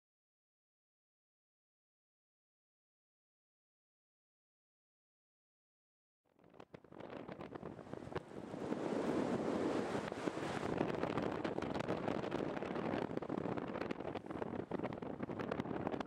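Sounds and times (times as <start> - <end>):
crackles: 6.3 - 16.0
wind buffeting microphone: 6.5 - 16.0.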